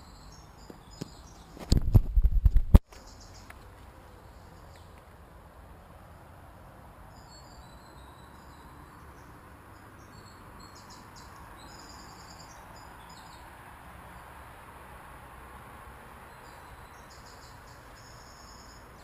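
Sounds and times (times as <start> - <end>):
insects chirping: 16.2 - 19.0.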